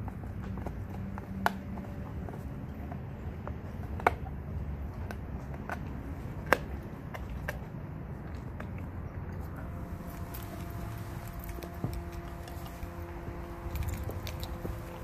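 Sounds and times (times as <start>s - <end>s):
teeth cracking on bone: 0.0s - 9.6s
dog chewing on bone: 0.0s - 15.0s.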